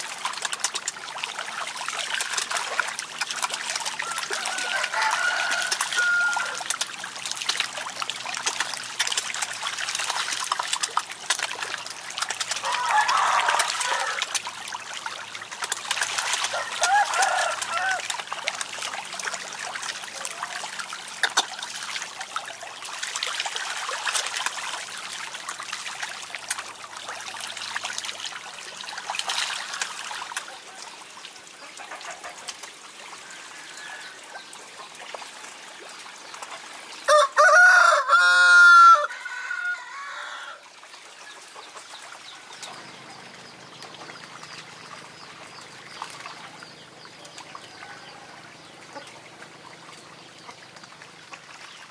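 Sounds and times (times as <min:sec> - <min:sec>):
fish splashing in water: 0:00.0 - 0:51.9
rooster crowing: 0:04.0 - 0:06.6, 0:12.6 - 0:14.2, 0:16.5 - 0:18.0, 0:37.1 - 0:40.6.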